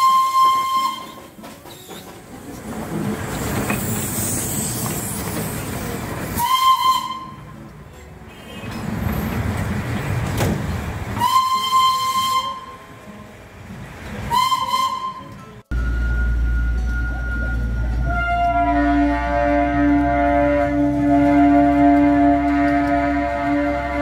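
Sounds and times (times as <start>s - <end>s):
high steam whistle blasts: 0.0s - 1.3s, 6.4s - 7.5s, 11.2s - 12.8s, 14.3s - 24.0s
steam locomotive hissing: 0.0s - 7.4s.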